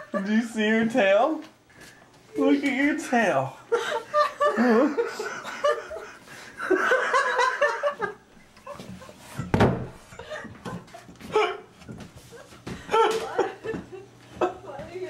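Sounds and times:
young women laughing: 3.7s - 9.4s, 10.1s - 14.8s
sudden thump: 9.5s - 10.0s.

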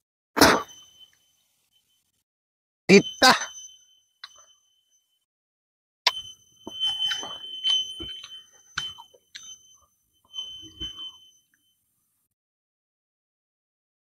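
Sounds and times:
steady high-pitched tone: 0.4s - 2.2s, 2.9s - 5.3s, 6.1s - 11.8s.

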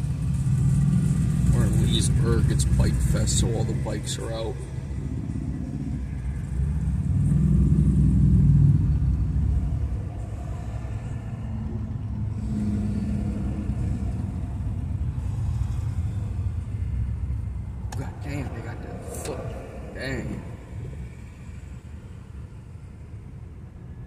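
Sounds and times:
motorcycles pulling away: 0.0s - 10.0s, 10.7s - 17.2s
traffic rumble from inside car: 0.0s - 24.0s.

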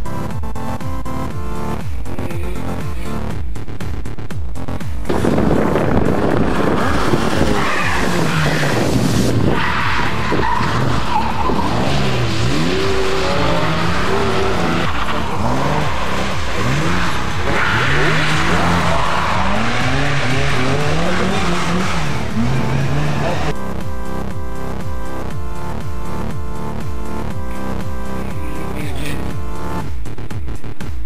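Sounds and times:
rally car engines revving: 0.0s - 30.9s
tyre noise on tarmac: 5.1s - 23.6s.

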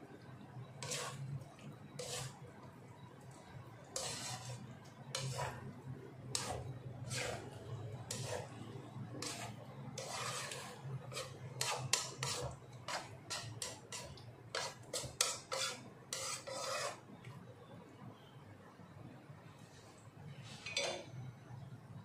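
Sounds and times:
spatula scraping vegetables in wok: 0.6s - 2.5s, 3.9s - 17.2s.

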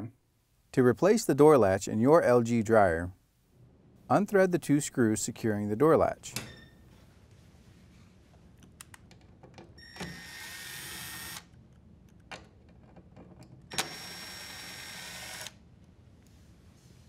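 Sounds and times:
cordless drill-driver running: 10.0s - 11.5s, 13.7s - 15.6s.

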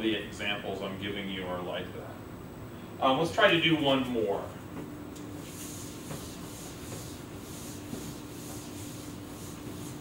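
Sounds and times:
low room hum: 0.0s - 10.0s
eraser wiping whiteboard: 5.3s - 10.0s.

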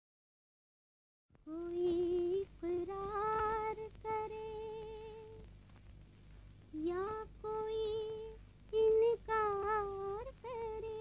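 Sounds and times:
woman singing wordless melody: 1.4s - 5.5s, 6.7s - 11.0s.

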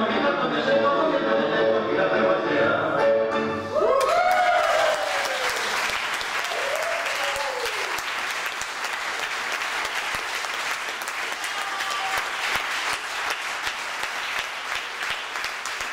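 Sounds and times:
audience clapping: 3.9s - 15.9s.

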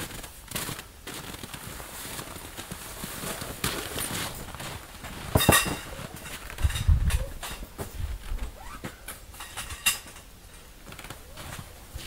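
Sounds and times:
footsteps crunching in snow: 0.0s - 6.8s, 10.8s - 12.0s.

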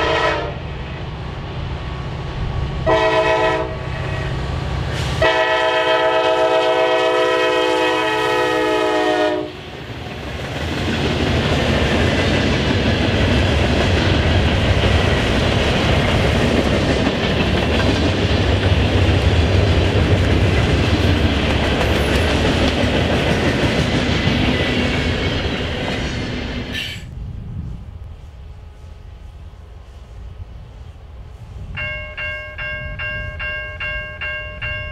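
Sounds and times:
locomotive air horn: 0.0s - 0.6s, 2.8s - 4.3s, 5.0s - 9.6s.

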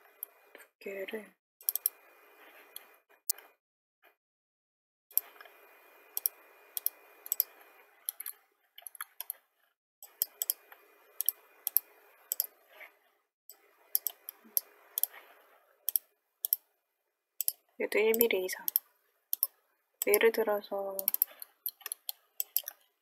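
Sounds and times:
computer mouse clicking: 1.6s - 2.0s, 6.2s - 9.4s, 10.0s - 12.5s, 13.9s - 15.2s, 15.9s - 16.7s, 17.4s - 20.2s, 21.0s - 22.9s.

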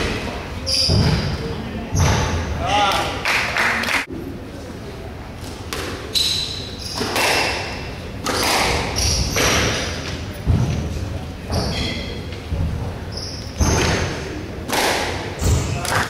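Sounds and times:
shoe squeaks on wooden floor: 0.6s - 2.4s, 6.1s - 7.1s, 8.9s - 9.8s, 11.5s - 12.3s, 13.1s - 14.1s
squash ball hits: 7.0s - 10.9s, 13.6s - 16.0s.

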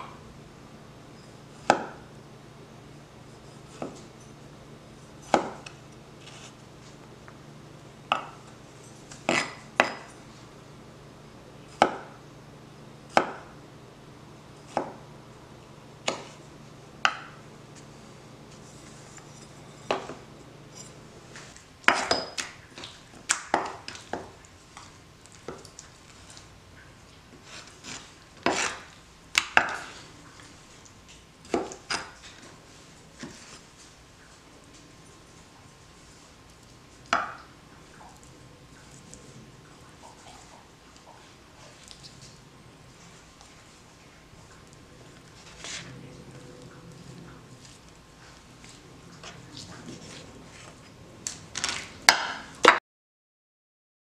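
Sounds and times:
cleaver chopping on wooden board: 1.6s - 2.0s, 5.2s - 5.7s, 13.1s - 13.5s.

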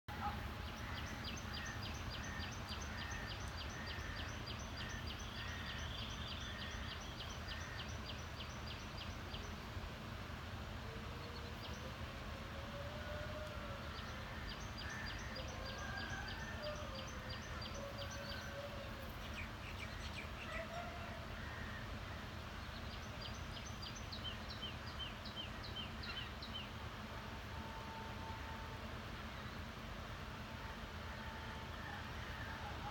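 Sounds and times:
low background noise: 0.1s - 32.9s.

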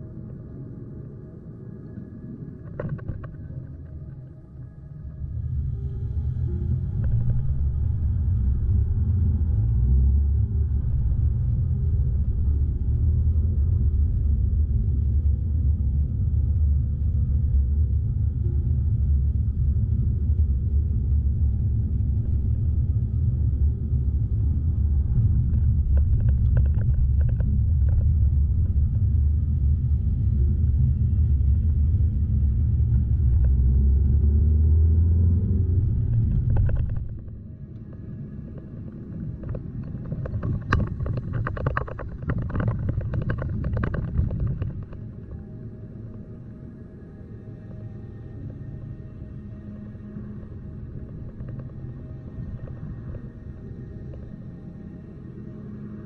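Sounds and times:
car engine and road rumble: 5.2s - 56.0s.

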